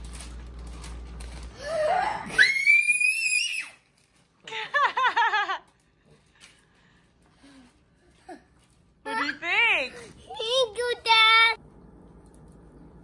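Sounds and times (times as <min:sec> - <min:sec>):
plastic bag rustling: 0:00.0 - 0:01.9
boy screaming excitedly: 0:02.3 - 0:03.8.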